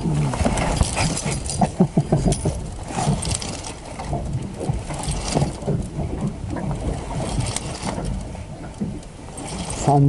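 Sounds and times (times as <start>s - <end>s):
low wind rumble: 0.0s - 10.0s
water lapping against boat hull: 0.0s - 10.0s.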